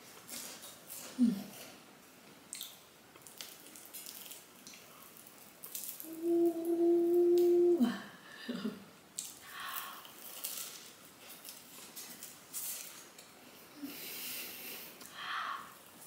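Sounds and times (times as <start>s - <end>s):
crust crackling: 0.0s - 7.8s, 9.1s - 16.0s
woman humming: 1.2s - 1.6s, 6.0s - 8.8s
chewing: 2.5s - 6.1s, 9.2s - 13.4s.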